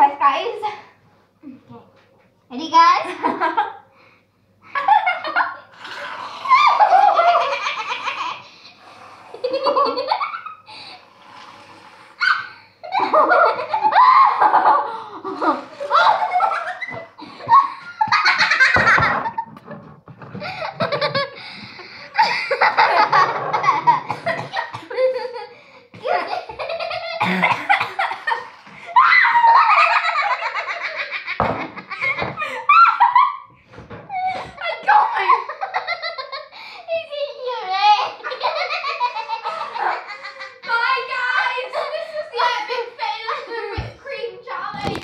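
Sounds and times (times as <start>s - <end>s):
girls laughing hard: 4.7s - 8.5s, 9.3s - 11.1s, 12.2s - 33.5s, 34.1s - 36.6s, 38.0s - 44.0s.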